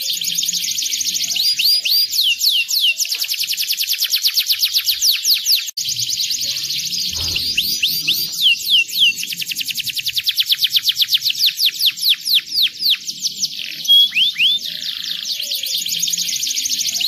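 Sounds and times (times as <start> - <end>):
canary singing: 0.0 - 17.0.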